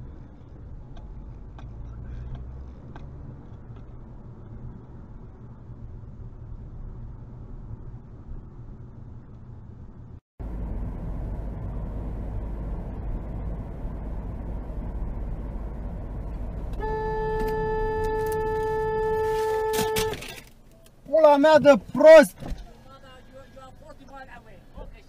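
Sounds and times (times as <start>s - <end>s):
road and engine rumble inside car: 0.0s - 25.0s
car horn long blast: 16.7s - 20.4s.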